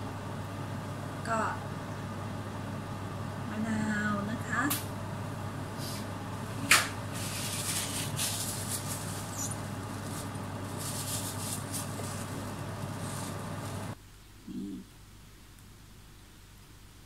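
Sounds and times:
steady low hum: 0.0 - 17.0
paper towel rustling: 6.7 - 14.0.

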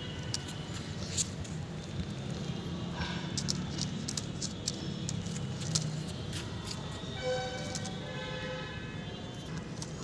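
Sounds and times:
dog claws clicking on tiles: 3.3 - 6.8.

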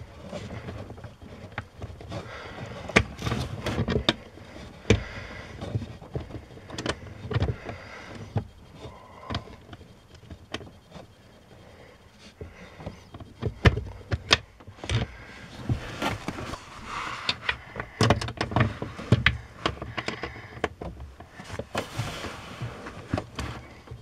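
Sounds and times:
plastic parts clicking and knocking: 0.2 - 11.2, 12.0 - 16.6, 17.2 - 21.9
rustling: 14.7 - 20.5, 21.1 - 24.0.

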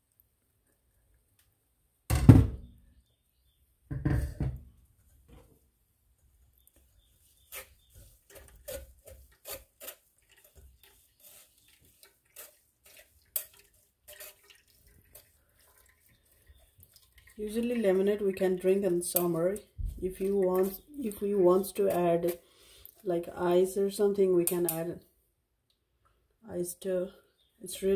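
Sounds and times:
spoon scraping metal strainer: 7.0 - 18.1, 20.2 - 23.0
juice pouring and splashing: 7.3 - 23.1.

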